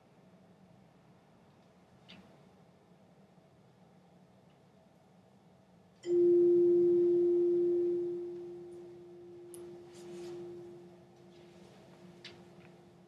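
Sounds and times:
chime ringing a clear tone: 6.0s - 12.2s
faint rustles and steps: 9.6s - 13.0s.

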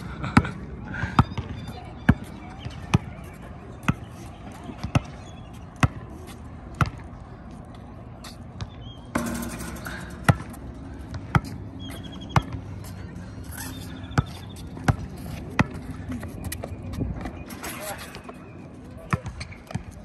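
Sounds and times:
basketball bouncing on concrete: 8.6s - 12.7s, 19.1s - 20.0s.

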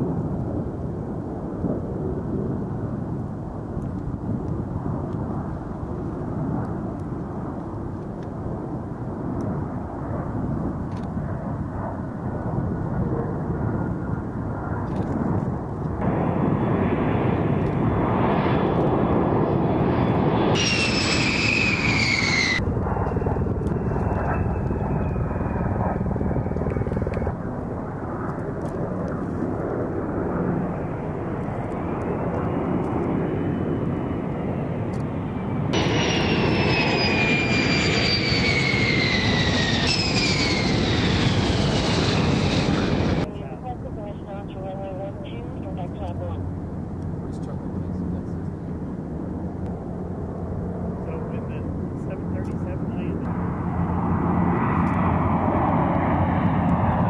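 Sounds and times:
jet engine rumble: 0.0s - 57.0s
high jet whine: 15.4s - 57.0s.

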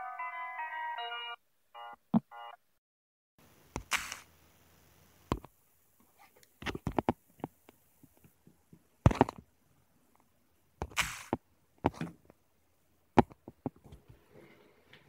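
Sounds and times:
short hiss: 3.8s - 4.3s, 10.9s - 11.4s.

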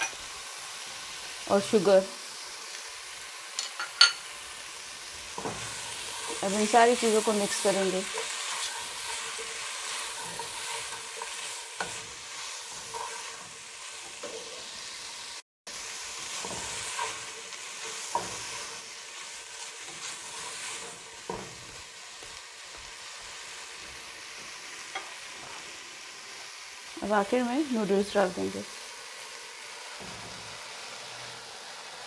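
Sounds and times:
food sizzling in a pot: 0.0s - 32.0s
spatula stirring food: 3.6s - 26.6s.

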